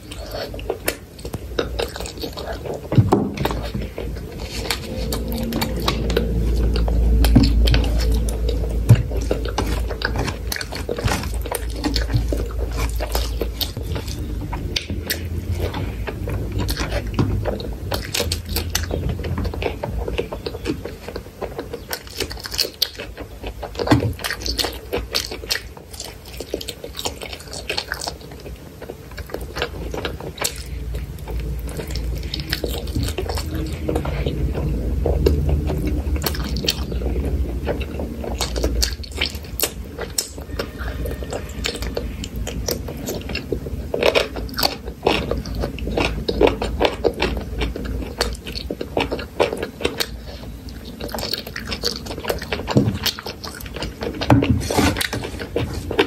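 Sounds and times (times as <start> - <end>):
crunchy chewing: 0.0 - 56.0.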